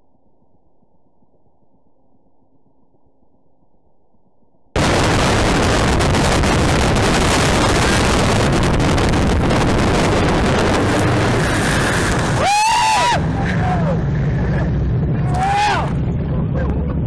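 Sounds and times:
wind on microphone: 0:04.8 - 0:12.4
speedboat engine: 0:04.8 - 0:17.0.

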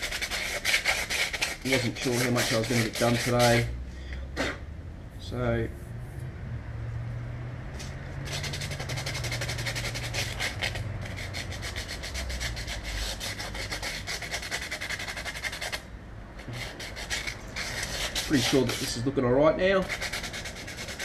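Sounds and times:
sandpaper scratching metal: 0:00.0 - 0:03.7, 0:08.2 - 0:15.8, 0:16.4 - 0:19.1, 0:19.8 - 0:21.0.

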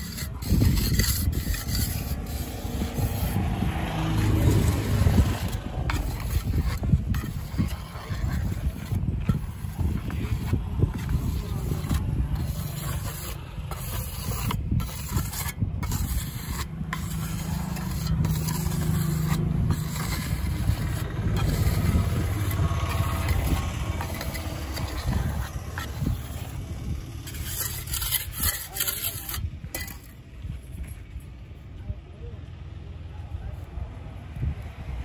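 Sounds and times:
trowel scraping wet cement: 0:00.0 - 0:31.0
low rumble: 0:00.5 - 0:15.0, 0:15.6 - 0:28.7.

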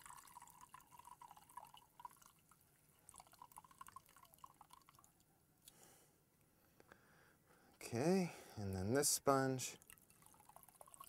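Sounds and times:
water dripping into plastic cup: 0:00.0 - 0:05.3, 0:09.8 - 0:11.0.

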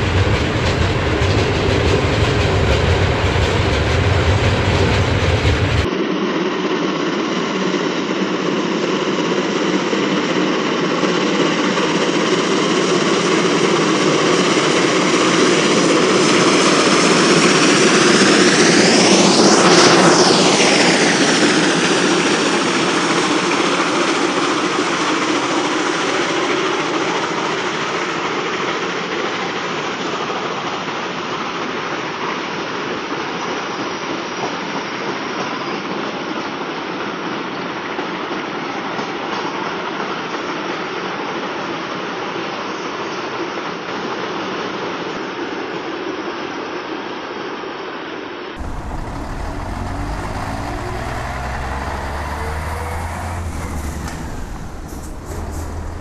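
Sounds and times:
rushing of something large passing: 0:48.6 - 0:56.0.

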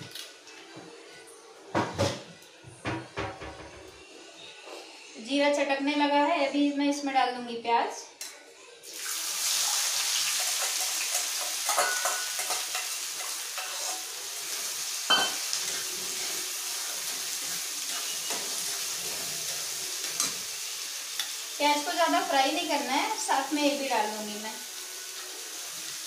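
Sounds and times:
onions sizzling in hot oil: 0:08.8 - 0:26.0
metal spatula scraping a pan: 0:10.3 - 0:20.5.

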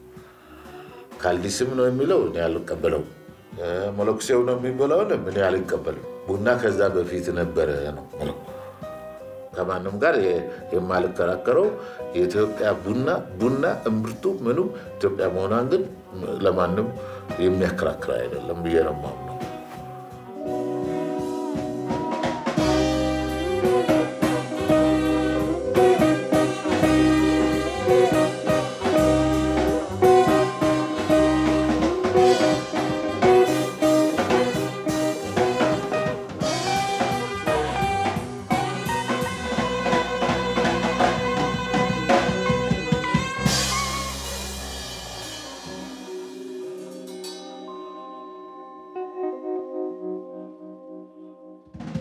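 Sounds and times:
live band music: 0:17.0 - 0:50.4
flute: 0:19.0 - 0:48.9.

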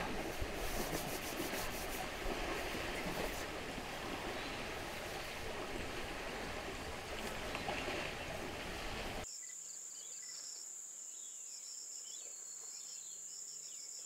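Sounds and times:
water splashing and sloshing: 0:00.0 - 0:09.3.

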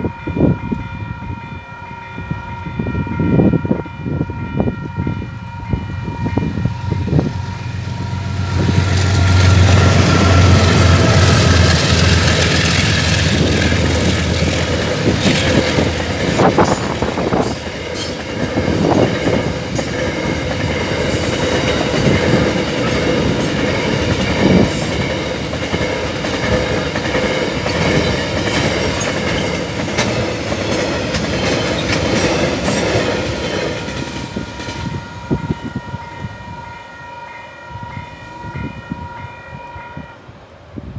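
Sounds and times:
crossing warning bells ringing: 0:00.0 - 0:40.4
freight train rumble: 0:00.0 - 0:40.9
wheels clacking over rail joints: 0:08.7 - 0:34.9.

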